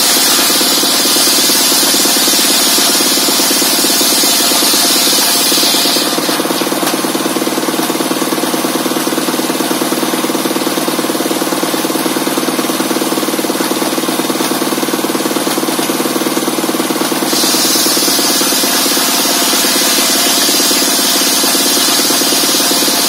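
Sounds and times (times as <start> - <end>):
saw blade cutting wood: 0.0 - 7.3, 17.2 - 23.0.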